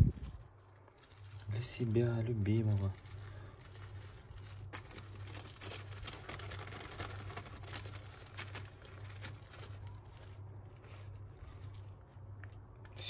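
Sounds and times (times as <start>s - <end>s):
faint low hum: 0.0s - 13.0s
plastic bag crinkling: 0.4s - 12.8s.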